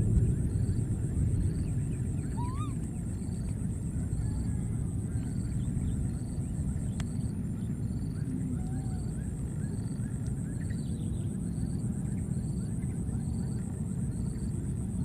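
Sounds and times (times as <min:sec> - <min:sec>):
wind rumbling on microphone: 0:00.0 - 0:15.0
bird chirps: 0:01.5 - 0:02.8
short rising bird call: 0:02.2 - 0:02.9.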